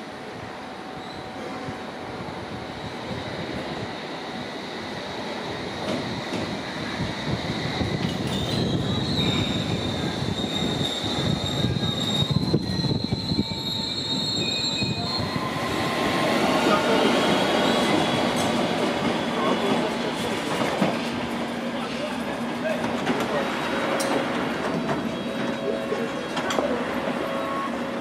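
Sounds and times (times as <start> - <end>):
train brakes squealing: 0.9 - 1.6, 6.0 - 19.7, 24.9 - 28.0.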